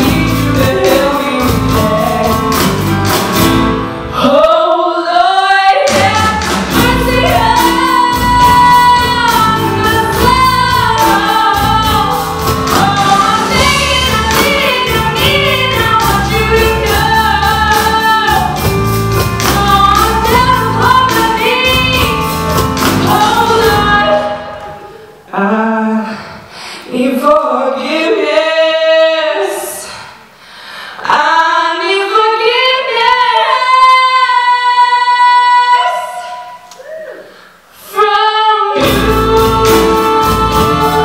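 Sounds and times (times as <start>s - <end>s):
woman singing into a microphone: 0.0s - 2.7s, 4.1s - 18.7s, 19.4s - 30.2s, 30.9s - 37.2s, 37.8s - 41.0s
live band playing: 0.0s - 4.3s, 5.9s - 25.2s, 38.8s - 41.0s.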